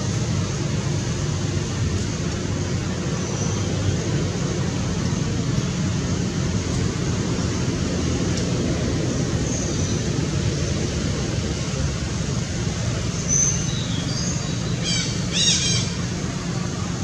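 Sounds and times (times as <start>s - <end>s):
low background rumble: 0.0s - 17.0s
high-pitched squeaky calls: 14.8s - 16.1s.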